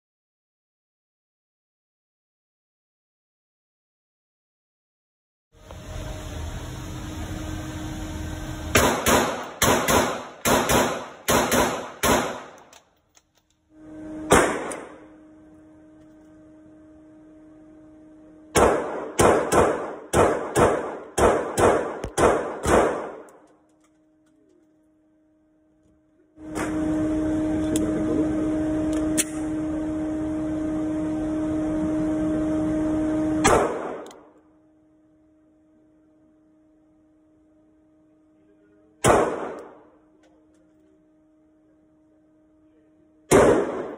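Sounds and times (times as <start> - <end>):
loud steady hiss: 5.6 - 10.1
low hum: 5.6 - 43.9
pistol shots echoing indoors: 8.8 - 12.9, 14.3 - 15.1, 18.5 - 23.5, 33.4 - 34.3, 39.0 - 39.9, 43.3 - 43.9.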